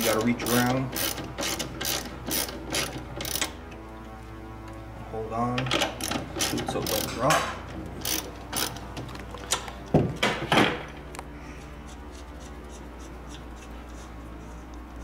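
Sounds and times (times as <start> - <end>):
socket ratchet clicking: 0.1 - 3.6, 8.0 - 8.8.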